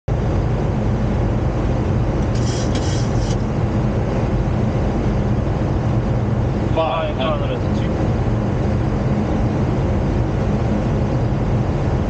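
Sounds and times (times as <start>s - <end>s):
low drone of engines and airflow: 0.1s - 12.0s
short hiss: 2.3s - 3.4s.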